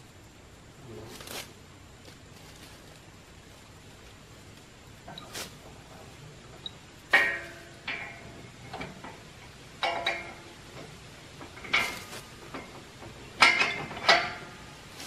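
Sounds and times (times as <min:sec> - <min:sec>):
metal clanking and clinking: 0:05.0 - 0:14.8.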